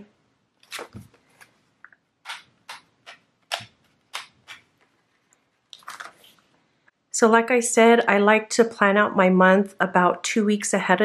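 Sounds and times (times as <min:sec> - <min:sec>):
paper pages flipping: 0:00.6 - 0:06.5.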